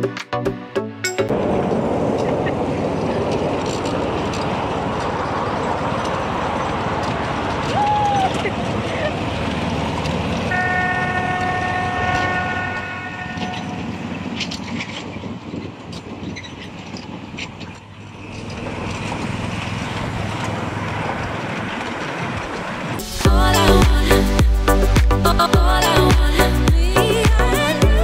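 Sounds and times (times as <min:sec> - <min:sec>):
carriages rumbling: 0:01.0 - 0:28.0
train horn chord: 0:10.5 - 0:14.0.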